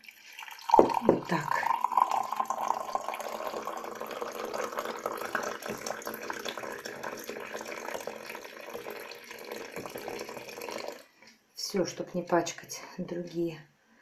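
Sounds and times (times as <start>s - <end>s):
water pouring into a mug: 0.0s - 11.2s.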